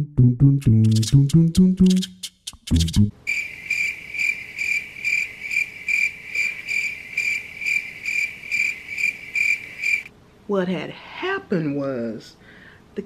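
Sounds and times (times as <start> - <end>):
crickets chirping: 2.0 - 10.1.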